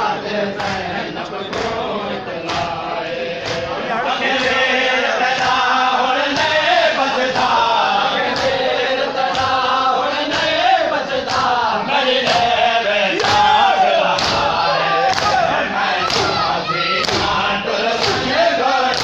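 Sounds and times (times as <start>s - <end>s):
crowd of men chanting: 0.0s - 19.0s
man chanting a lament: 0.0s - 19.0s
chest-beating slaps: 3.4s - 4.7s, 8.3s - 8.6s, 11.2s - 11.5s, 14.1s - 15.4s, 16.0s - 17.4s, 18.0s - 18.3s.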